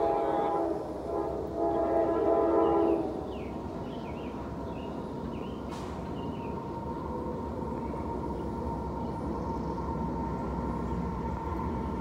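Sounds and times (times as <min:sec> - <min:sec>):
distant train air horn: 0:00.0 - 0:03.4.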